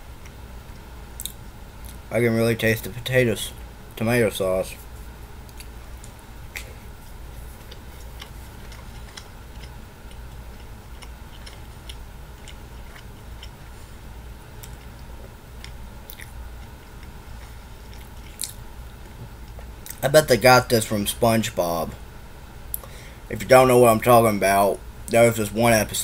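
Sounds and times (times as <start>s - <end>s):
steady low hum: 0.0s - 26.0s
mouth chewing clicks and smacks: 1.2s - 2.0s, 7.6s - 13.6s, 14.6s - 17.2s, 17.8s - 18.6s, 19.5s - 20.0s.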